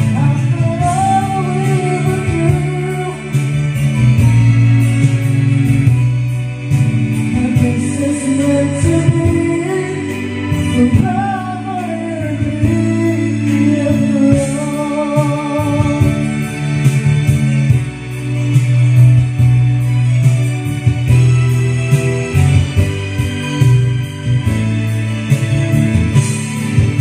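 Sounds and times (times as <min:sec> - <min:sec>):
person singing: 0:00.0 - 0:04.8, 0:07.2 - 0:18.8
karaoke backing track: 0:00.0 - 0:27.0.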